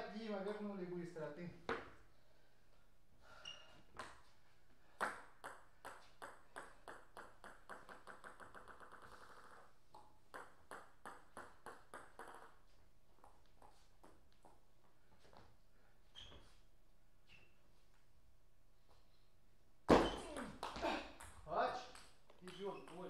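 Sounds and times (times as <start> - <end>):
table tennis ball bouncing: 5.0 - 14.6, 19.9 - 23.0.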